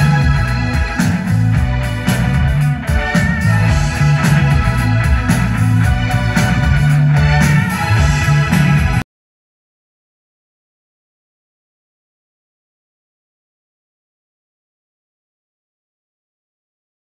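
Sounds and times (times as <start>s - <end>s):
drums: 0.0s - 9.0s
electric bass line: 0.0s - 9.0s
electric guitar: 0.0s - 9.0s.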